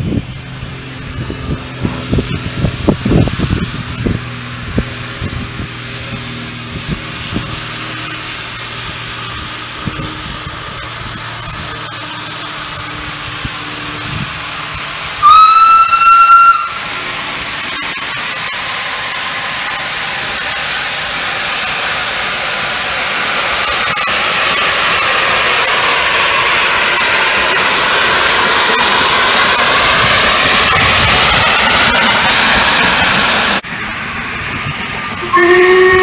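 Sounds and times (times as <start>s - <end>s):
steam hiss: 2.8s - 36.0s
steam locomotive whistle: 15.1s - 17.1s, 35.1s - 36.0s.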